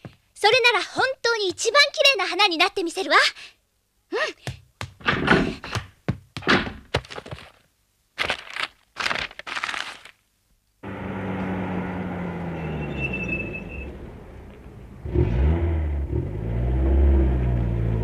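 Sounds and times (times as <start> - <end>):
sharp knocks and thuds: 4.4 - 7.6
car engine humming: 10.8 - 18.0.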